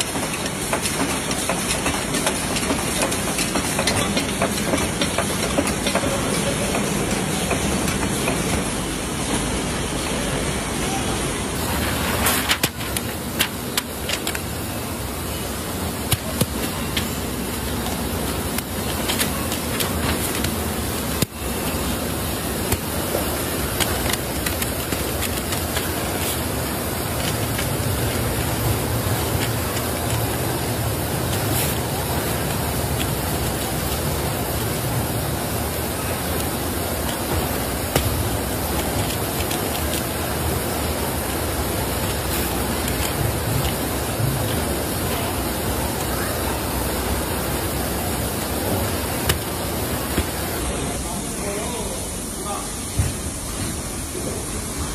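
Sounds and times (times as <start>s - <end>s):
steady loud hiss-like din: 0.0s - 54.9s
kraft paper crackling and folding: 11.6s - 14.6s, 15.7s - 46.3s.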